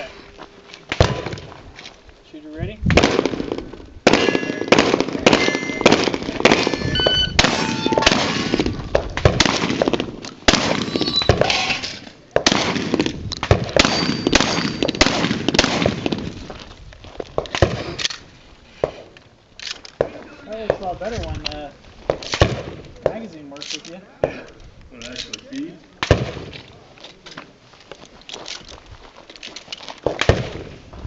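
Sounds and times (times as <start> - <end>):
rapid gunshots: 2.9 - 6.8, 7.4 - 11.6, 12.4 - 16.2
pings from steel targets: 4.2 - 8.6, 10.7 - 11.8, 13.8 - 15.1.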